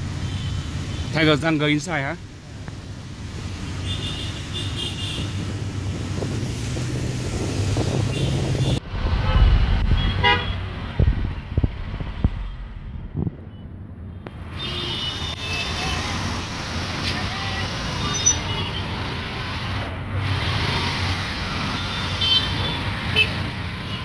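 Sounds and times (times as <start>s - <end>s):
traffic engine hum: 0.0s - 24.0s
vehicle horn beeps: 10.0s - 10.6s.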